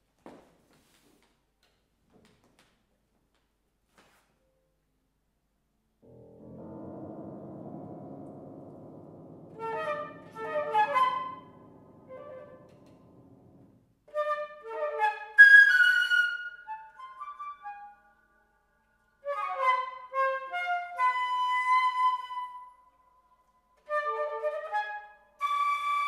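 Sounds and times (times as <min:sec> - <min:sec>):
low held piano note: 0:06.0 - 0:13.8
flute playing fast runs: 0:09.6 - 0:12.7.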